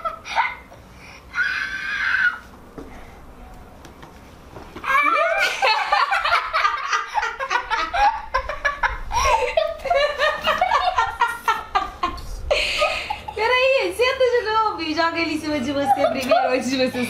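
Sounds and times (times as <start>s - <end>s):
girl laughing hard: 0.0s - 0.7s, 4.9s - 13.5s.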